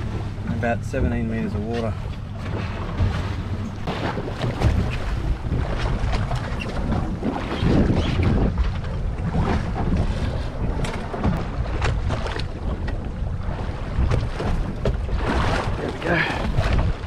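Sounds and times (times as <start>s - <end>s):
waves slapping against boat: 0.0s - 17.0s
wind buffeting microphone: 0.0s - 17.0s.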